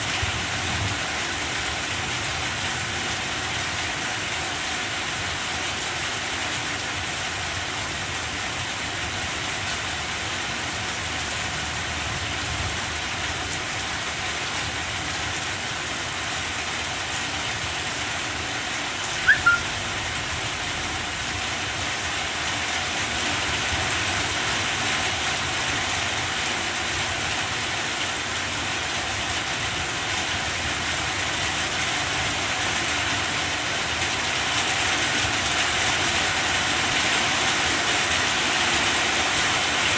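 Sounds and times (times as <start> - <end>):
rain falling on leaves: 0.0 - 39.9
short high chirp: 19.2 - 19.8.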